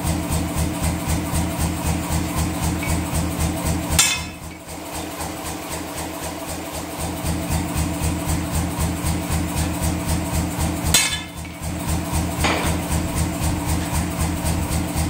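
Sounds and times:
shop machine pulsing: 0.0 - 15.0
sharp metallic clang: 4.0 - 4.5, 10.9 - 11.5.

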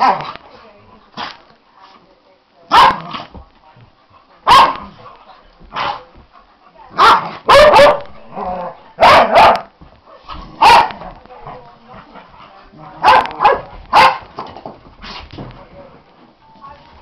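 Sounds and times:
dogs barking: 2.7 - 3.2, 4.4 - 5.1, 6.9 - 9.7, 10.5 - 11.0, 12.9 - 14.3.

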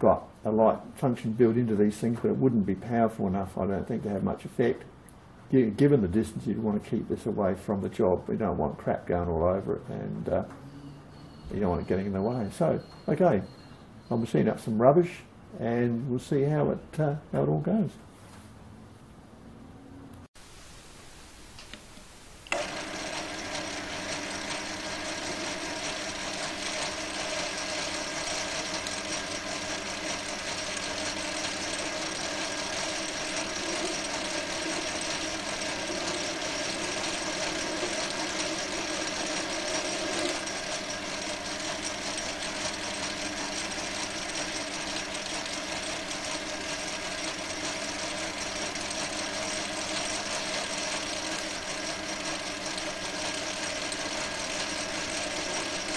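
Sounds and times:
lathe motor whine: 10.1 - 14.6, 22.5 - 55.9.

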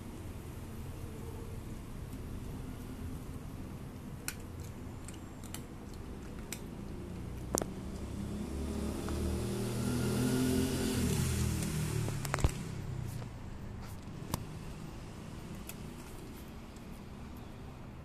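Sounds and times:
cat crunching dry kibble: 4.1 - 8.1
passing vehicle engine: 6.6 - 16.0.

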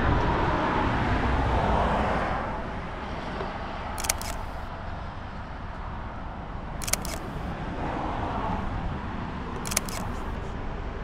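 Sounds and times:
outdoor background hiss and rumble: 0.0 - 11.0
camera shutter clicks: 4.0 - 4.7, 6.8 - 7.5, 9.6 - 10.4.

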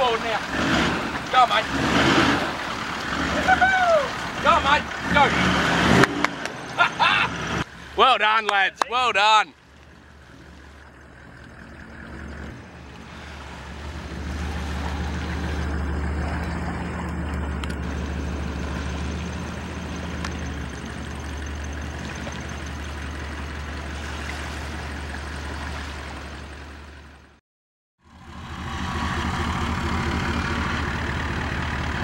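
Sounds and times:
water or wind noise: 0.0 - 6.8, 8.9 - 27.4
engine humming: 0.0 - 27.4, 28.0 - 32.0.

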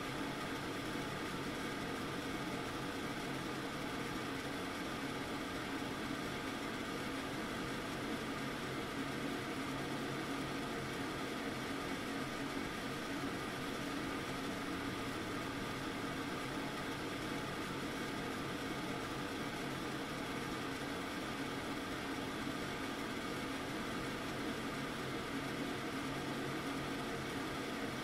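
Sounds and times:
range hood exhaust fan running: 0.0 - 28.0.

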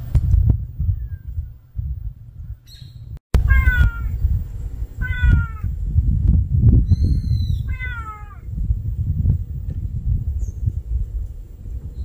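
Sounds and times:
low rumble: 0.0 - 12.0
kitten meowing: 3.5 - 4.2, 5.0 - 5.7, 7.6 - 8.4.

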